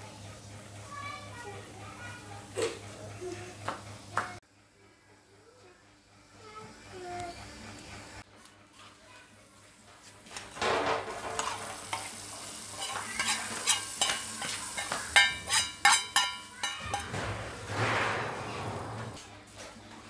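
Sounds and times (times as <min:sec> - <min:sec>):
hot oil sizzling in soup: 0:10.3 - 0:17.0
metal spoon scraping and clinking pan: 0:11.0 - 0:17.2.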